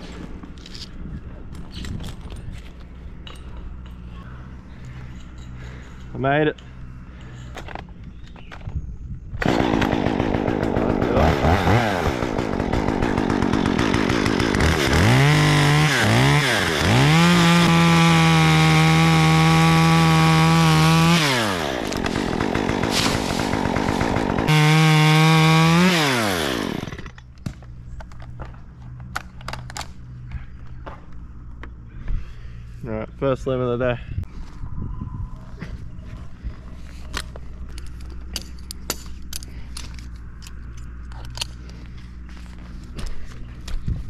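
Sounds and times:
chainsaw cutting wood: 9.4 - 27.5.

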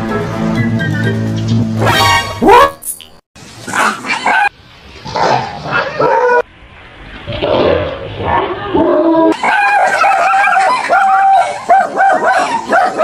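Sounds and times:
dog barking and yelping: 3.7 - 4.5, 5.1 - 6.5, 9.3 - 13.0.

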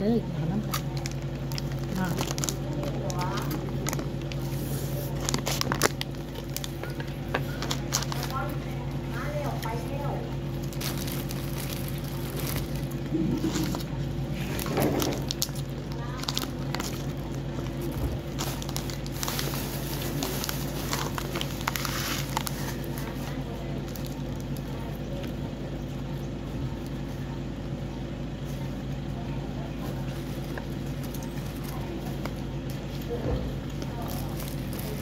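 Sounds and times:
steady low hum: 0.0 - 35.0
plastic bag crinkling: 0.6 - 25.4, 33.6 - 35.0.

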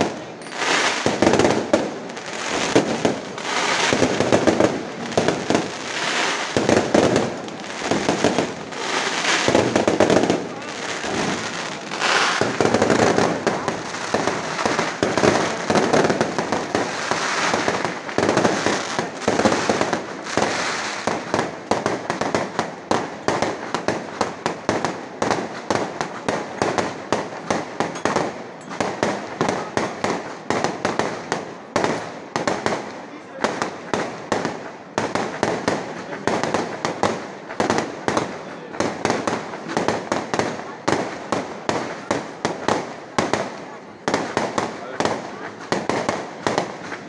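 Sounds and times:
fireworks bangs and crackling: 0.0 - 47.0
sharp firework pops: 0.0 - 47.0.

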